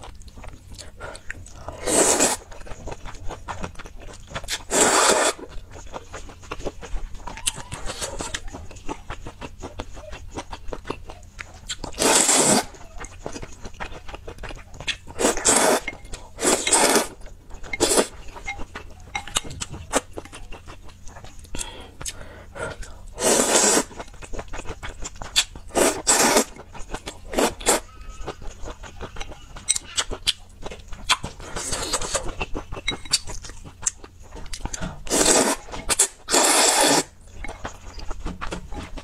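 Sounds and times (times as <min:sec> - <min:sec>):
wet chewing: 0:00.0 - 0:39.0
noodle slurps: 0:01.8 - 0:02.4, 0:04.5 - 0:05.5, 0:12.0 - 0:12.7, 0:15.2 - 0:18.1, 0:23.2 - 0:24.0, 0:25.4 - 0:26.5, 0:35.1 - 0:37.1.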